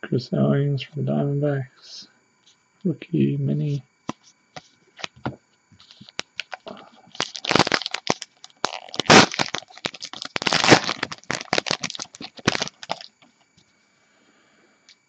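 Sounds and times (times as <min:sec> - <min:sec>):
plastic wrapper tearing and crinkling: 0:05.8 - 0:13.2.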